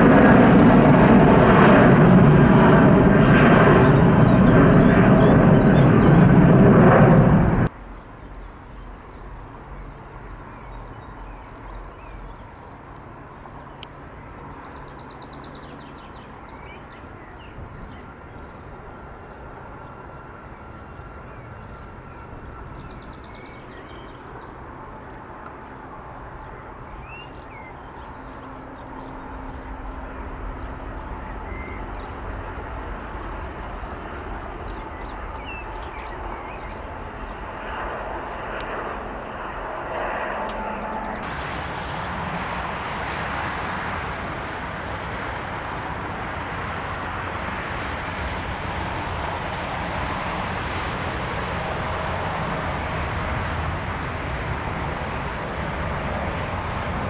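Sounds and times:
approaching aircraft hum: 0:00.0 - 0:57.0
jet airliner noise: 0:00.0 - 0:57.0
low distant hum: 0:00.0 - 0:57.0
songbirds chirping and trilling: 0:03.6 - 0:41.3.

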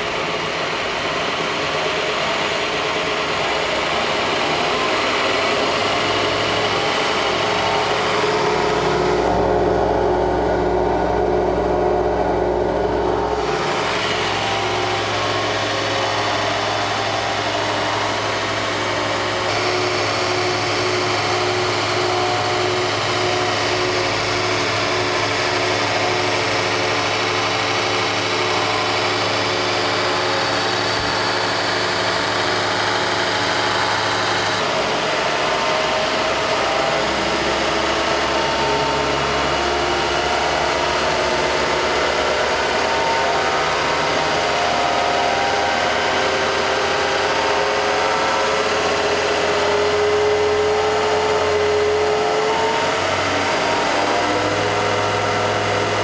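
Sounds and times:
belt grinder motor hum and whine: 0:00.3 - 0:56.0.

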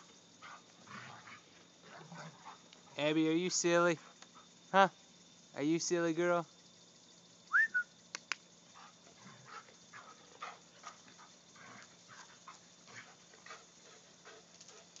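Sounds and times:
sharp clicks: 0:08.1 - 0:08.4.

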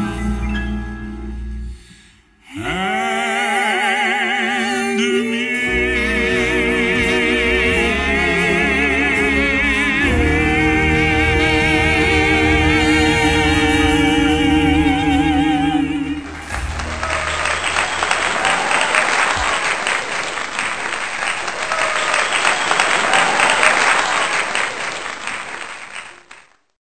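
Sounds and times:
vocal trio singing: 0:00.0 - 0:17.0
jazz band: 0:05.7 - 0:18.2
audience applause: 0:16.0 - 0:26.6.

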